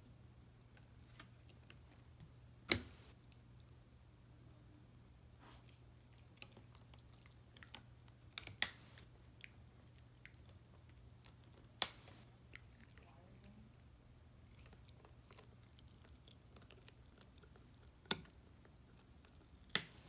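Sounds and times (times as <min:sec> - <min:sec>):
wood snapping: 0:02.3 - 0:03.1, 0:08.3 - 0:09.0, 0:11.6 - 0:12.2, 0:19.3 - 0:20.0
dog gnawing wooden stick: 0:05.6 - 0:13.1, 0:14.3 - 0:20.0.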